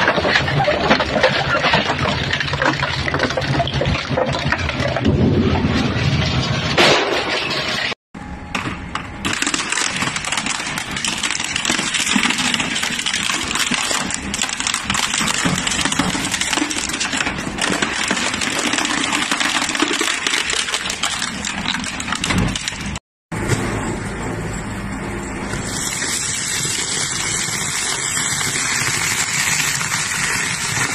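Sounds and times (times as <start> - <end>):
crusher grinding metal: 0.0 - 8.0, 9.3 - 23.0.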